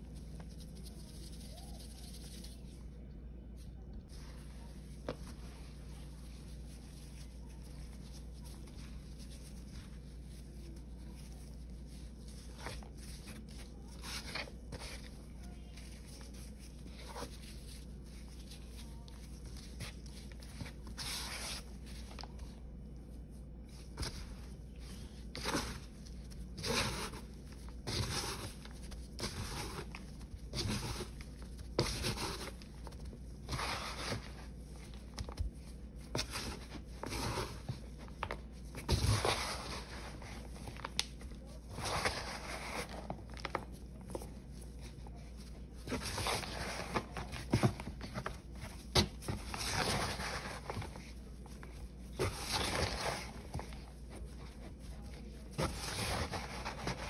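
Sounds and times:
gritty crunching of paste: 45.6 - 57.0.

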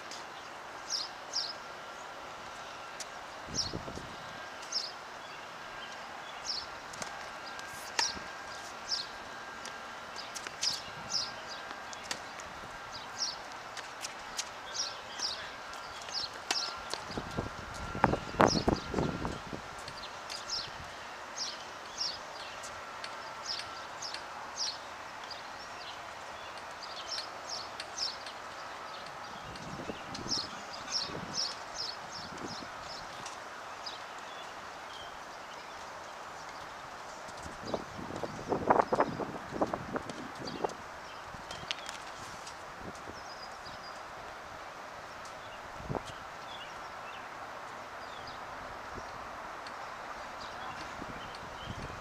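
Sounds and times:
outdoor background noise: 0.0 - 52.0
small birds chirping: 0.4 - 2.1, 2.7 - 9.2, 10.1 - 44.1, 45.2 - 47.3, 48.0 - 52.0.

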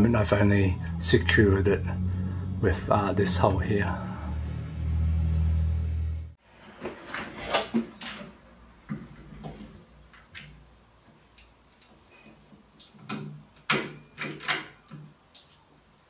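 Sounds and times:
door closer parts clicking and knocking: 12.9 - 15.2.

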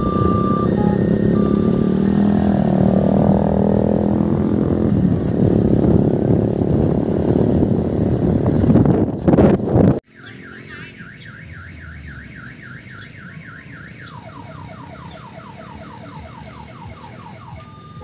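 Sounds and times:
warbling electronic siren: 0.0 - 4.8, 10.1 - 18.0
wind and motion noise: 0.0 - 10.0.

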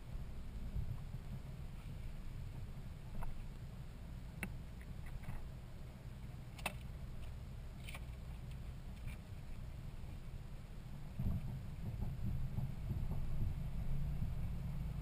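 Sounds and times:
vehicle rumbling over rough ground: 0.0 - 15.0
sharp clicks and knocks: 6.5 - 9.2.

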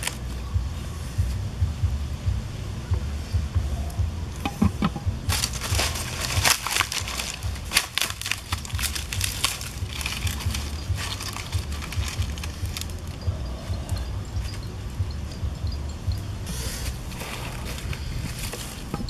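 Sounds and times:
palm leaves rustling and crackling: 0.0 - 1.5, 3.2 - 19.0
steady low rumble: 0.0 - 19.0.

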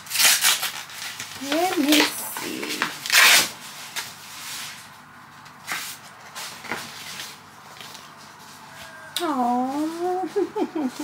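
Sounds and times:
paper rustling: 0.0 - 8.7.

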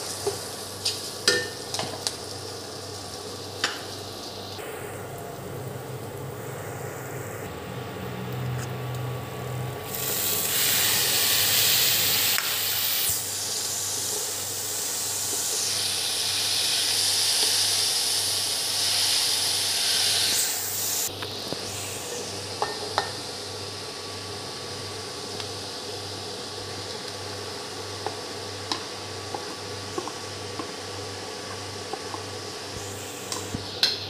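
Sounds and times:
spinach sizzling in hot oil: 0.0 - 23.6.

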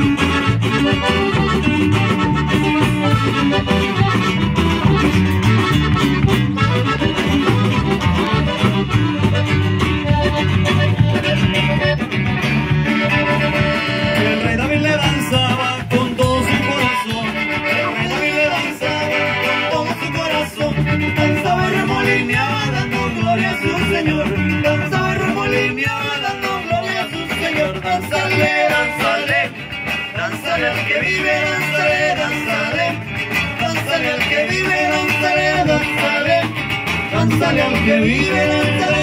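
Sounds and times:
steady beat: 0.0 - 18.4
button accordion: 0.0 - 39.0
electric bass: 0.0 - 39.0
guitar: 0.0 - 39.0.

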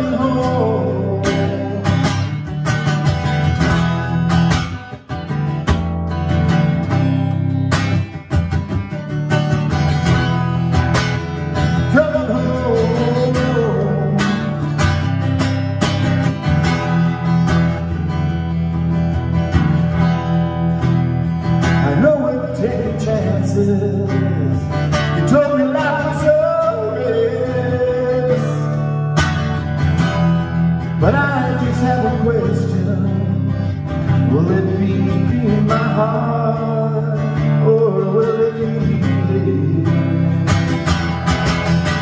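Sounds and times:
man singing: 0.0 - 2.5, 11.3 - 15.1, 21.6 - 29.1, 30.8 - 40.6
strummed acoustic guitar: 0.0 - 42.0.

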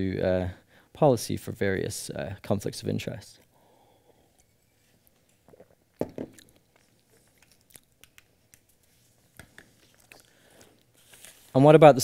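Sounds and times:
object set down knocking: 6.0 - 6.4.

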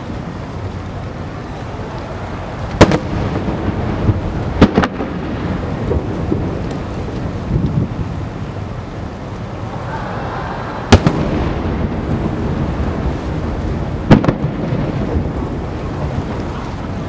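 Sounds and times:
firework shells bursting: 2.6 - 7.8, 10.8 - 16.4.

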